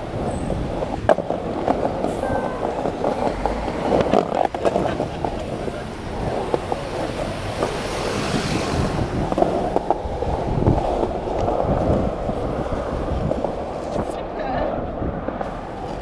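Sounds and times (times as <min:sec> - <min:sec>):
skateboard wheels rolling on pavement: 0:00.0 - 0:16.0
wheels clicking over cracks: 0:00.0 - 0:16.0
wind on microphone: 0:00.0 - 0:16.0.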